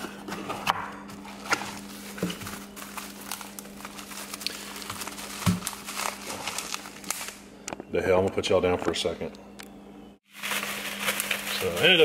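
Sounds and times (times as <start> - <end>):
cardboard and bubble wrap rustling: 0.0 - 7.4, 10.3 - 12.0.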